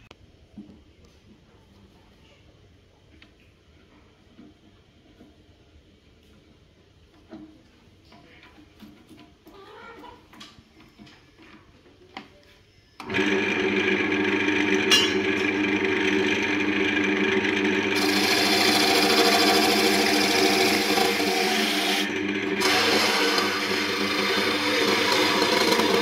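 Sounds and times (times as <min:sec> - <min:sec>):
lathe motor humming: 0:13.0 - 0:26.0
tool hissing on spinning wood: 0:16.0 - 0:26.0.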